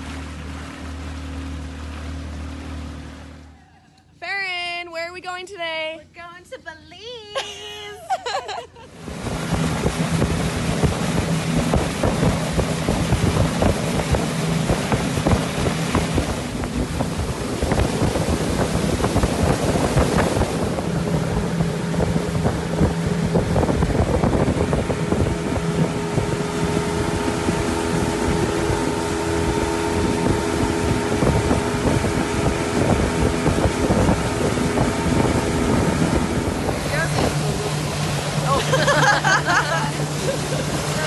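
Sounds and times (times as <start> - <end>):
water rushing past hull: 0.0 - 3.9, 8.9 - 41.0
motorboat engine running: 0.0 - 6.2, 8.9 - 41.0
wind buffeting microphone: 9.0 - 41.0.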